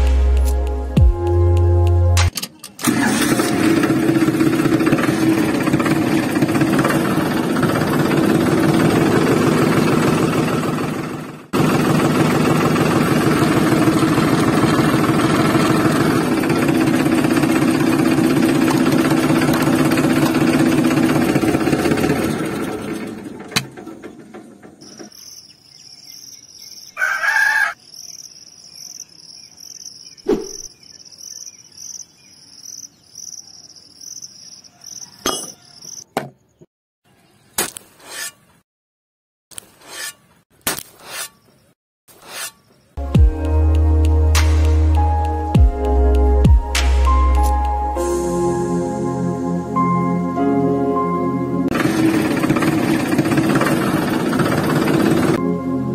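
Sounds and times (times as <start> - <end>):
tractor engine putter: 2.2 - 25.3, 51.7 - 55.4
insects chirping: 24.8 - 36.1
rooster crowing: 27.0 - 27.8, 34.6 - 36.0
knocks and scrapes: 37.6 - 38.6, 39.6 - 42.7.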